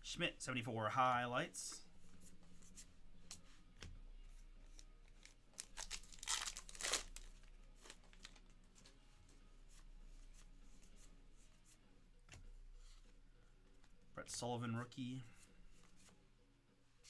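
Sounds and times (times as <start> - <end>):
card pack wrapper tearing: 5.2 - 7.3.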